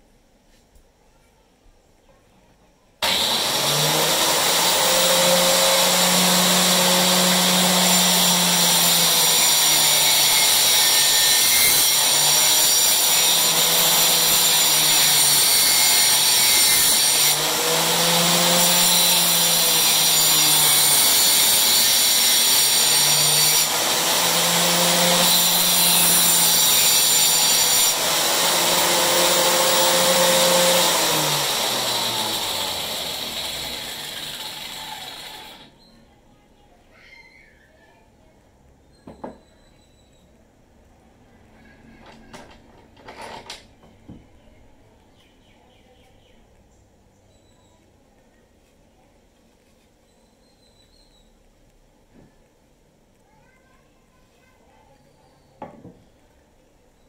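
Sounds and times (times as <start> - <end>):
angle grinder cutting wood: 3.0 - 35.8.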